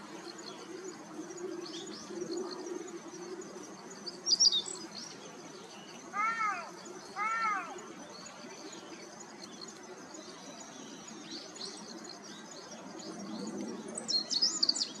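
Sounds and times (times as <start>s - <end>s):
bird singing: 0.0s - 15.0s.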